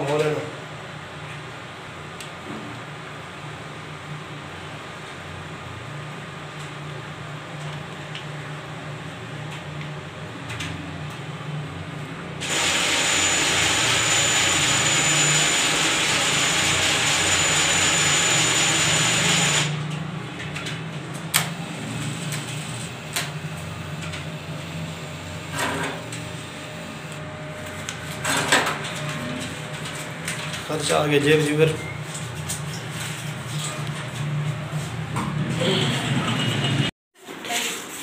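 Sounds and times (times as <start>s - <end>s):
cash dispenser whirring: 12.4s - 34.8s.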